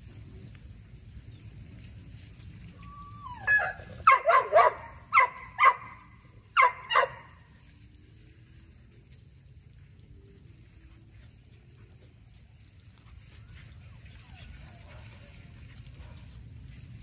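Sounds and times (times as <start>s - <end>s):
dog barking sharply: 4.1s - 5.9s.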